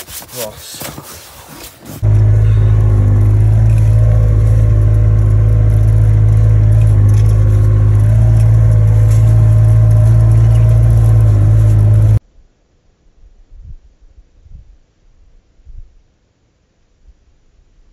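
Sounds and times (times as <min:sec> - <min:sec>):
utility vehicle engine drone: 0:02.0 - 0:12.2.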